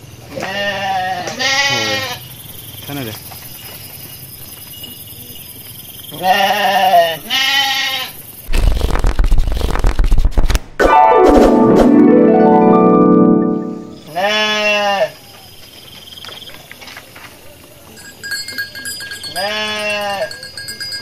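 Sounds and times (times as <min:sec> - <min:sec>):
sheep bleating: 0:00.4 - 0:02.2, 0:06.2 - 0:08.1, 0:14.1 - 0:15.2, 0:19.3 - 0:20.3
rushing noise burst: 0:08.5 - 0:12.4
held chord sliding downward: 0:10.8 - 0:14.1.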